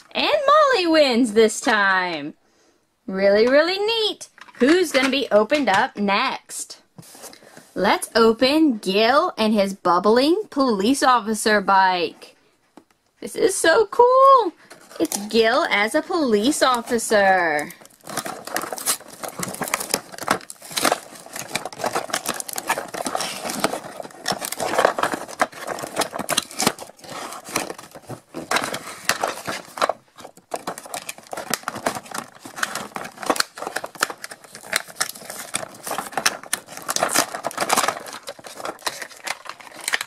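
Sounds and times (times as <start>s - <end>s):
packaging crinkling and rustling: 14.6s - 15.5s, 16.4s - 40.0s
packaging clicks and snaps: 17.6s - 40.0s.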